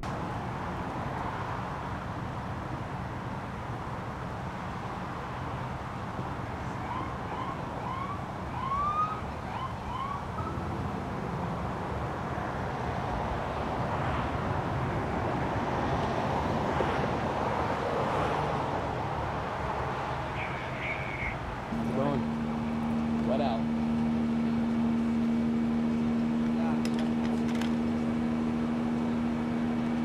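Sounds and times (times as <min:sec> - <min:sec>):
freeway traffic passing: 0:00.0 - 0:30.0
idling engines hum: 0:00.0 - 0:30.0
siren whooping: 0:06.8 - 0:10.6, 0:20.3 - 0:26.5.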